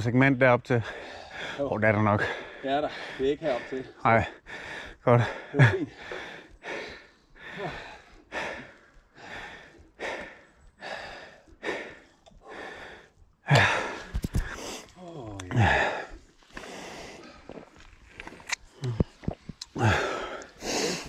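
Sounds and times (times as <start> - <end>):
person breathing hard: 0.8 - 17.7, 18.8 - 21.0
person groaning: 15.1 - 16.0.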